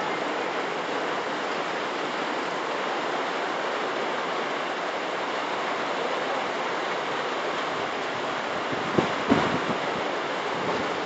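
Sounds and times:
floodwater rushing: 0:00.0 - 0:11.0
heavy rain pouring: 0:00.0 - 0:11.0.

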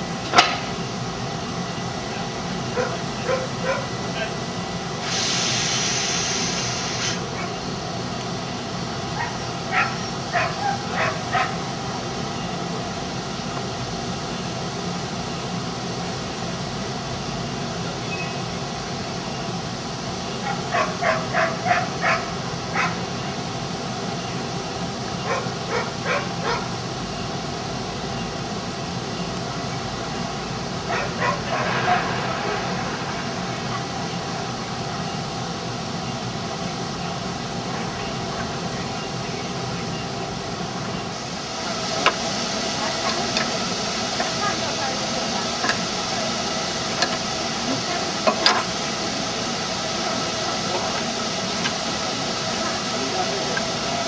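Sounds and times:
dog barking: 0:02.8 - 0:03.9, 0:09.2 - 0:11.6, 0:20.4 - 0:23.0, 0:25.3 - 0:26.7, 0:30.9 - 0:31.5
steady background noise: 0:07.3 - 0:54.0.

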